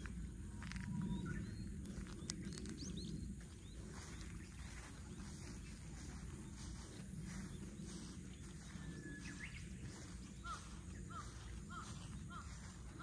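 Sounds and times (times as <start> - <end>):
low steady background rumble: 0.0 - 13.0
bird calling: 8.4 - 13.0.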